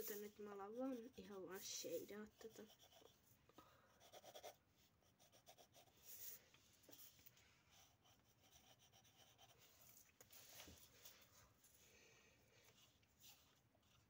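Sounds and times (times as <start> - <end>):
pencils scratching on paper: 0.0 - 3.2, 4.0 - 11.2.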